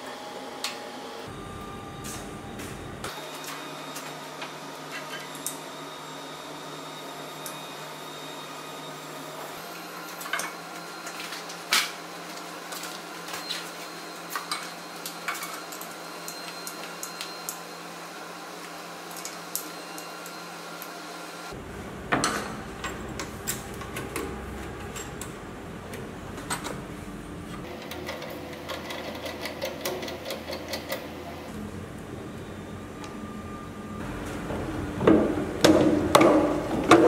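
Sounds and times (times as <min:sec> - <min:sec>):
steady low hum: 0:01.2 - 0:03.2, 0:21.5 - 0:27.7.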